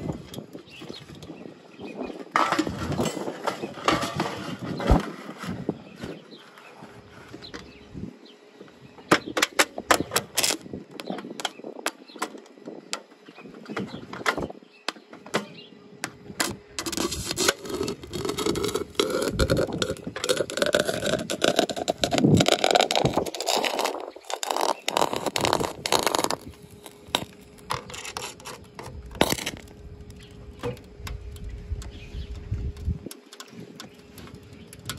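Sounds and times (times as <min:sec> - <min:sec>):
welding rod crackles and clicks: 0:09.4 - 0:13.1, 0:16.0 - 0:34.9
welding arc crackling sizzle: 0:16.4 - 0:34.9.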